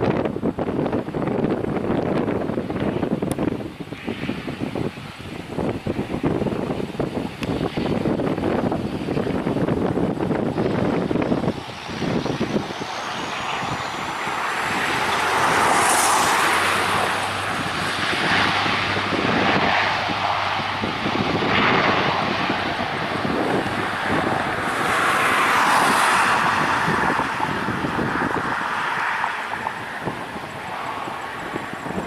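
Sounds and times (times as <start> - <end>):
turboprop engines running: 0.0 - 32.0
faint rising whine: 10.6 - 19.2.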